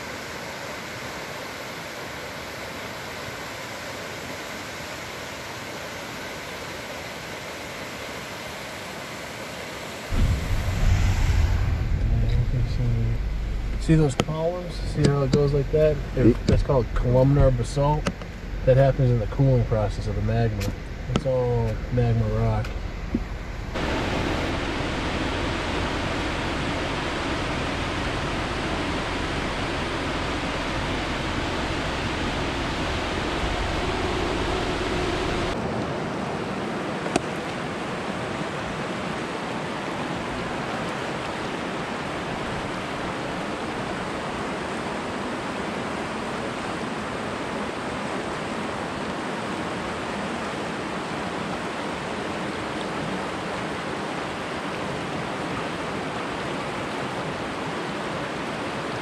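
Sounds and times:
water rushing: 0.0 - 59.0
deep rumble: 10.1 - 35.6.

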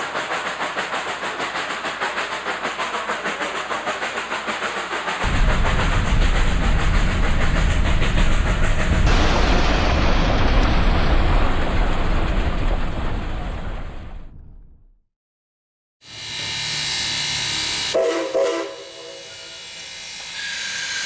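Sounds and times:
train clattering: 0.0 - 14.4.

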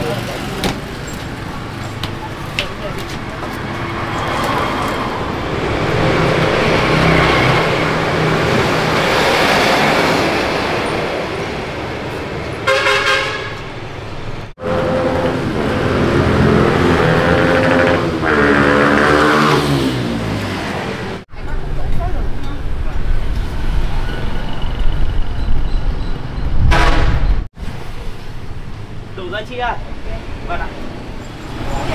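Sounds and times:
street traffic noise: 0.0 - 31.9
vehicle engine passing close by: 3.5 - 11.6, 14.6 - 21.2
vehicle horn toot: 12.6 - 13.7, 14.6 - 15.5, 26.6 - 27.4.

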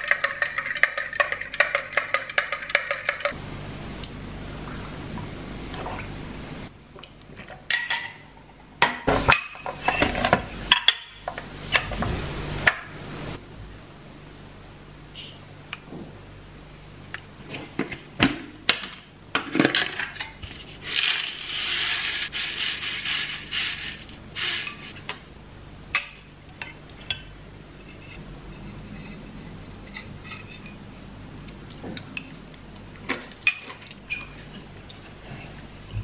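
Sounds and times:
granola rattling into bowl: 20.8 - 24.6.

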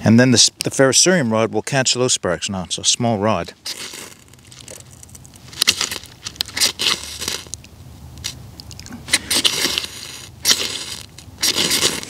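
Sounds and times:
knife scraping ferrocerium rod: 5.5 - 7.6, 9.1 - 12.0.

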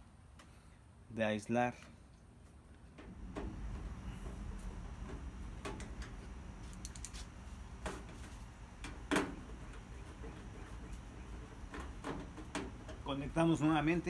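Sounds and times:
low background rumble: 2.8 - 14.0.

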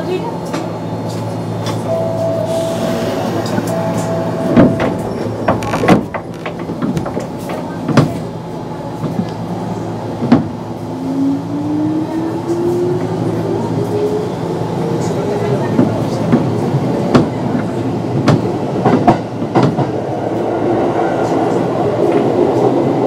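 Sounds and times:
train rumble: 0.0 - 23.0
wheels clacking over rail joints: 4.5 - 8.3.

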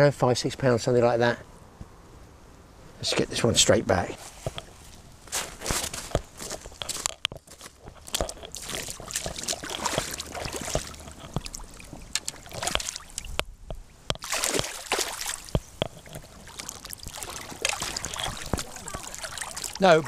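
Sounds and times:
footsteps crunching on pebbles: 4.2 - 13.1
net splashing in shallow water: 7.6 - 13.4, 14.2 - 20.0.

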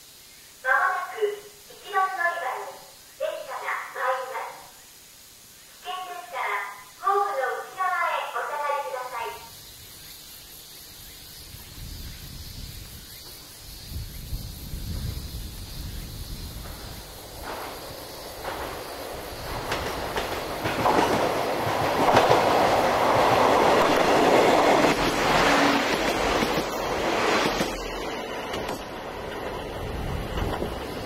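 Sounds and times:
wheels clacking over rail joints: 17.3 - 31.0.

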